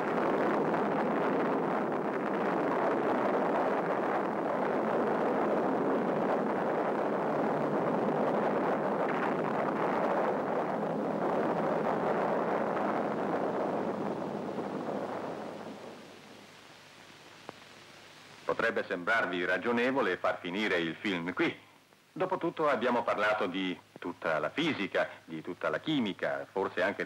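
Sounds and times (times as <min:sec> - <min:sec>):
explosion roar: 0:00.0 - 0:16.5.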